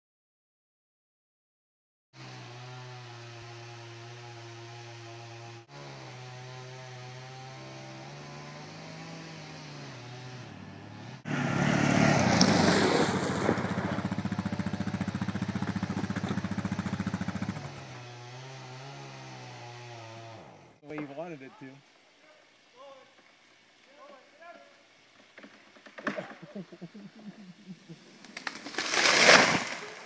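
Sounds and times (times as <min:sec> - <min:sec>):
steady engine hum: 0:07.2 - 0:20.8
atv engine running: 0:10.0 - 0:20.8.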